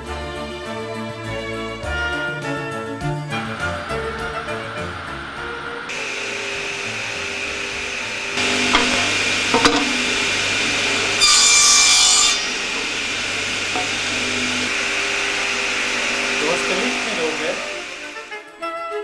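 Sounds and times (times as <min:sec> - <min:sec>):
table saw running: 0:02.5 - 0:18.4
saw blade cutting wood: 0:05.9 - 0:18.3
sharp knocks: 0:08.7 - 0:10.0.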